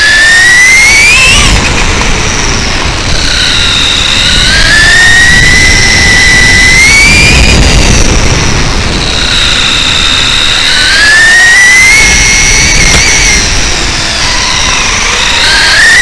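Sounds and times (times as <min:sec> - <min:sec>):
electric motor whine: 0:00.0 - 0:16.0
tyres rumbling on asphalt: 0:00.0 - 0:16.0.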